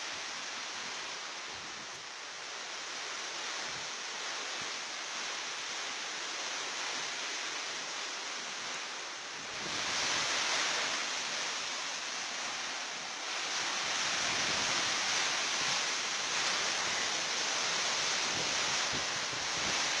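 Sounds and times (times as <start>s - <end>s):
heavy rain: 0.0s - 20.0s
storm wind through trees: 0.0s - 20.0s
wind buffeting microphone: 9.4s - 11.3s, 13.3s - 20.0s.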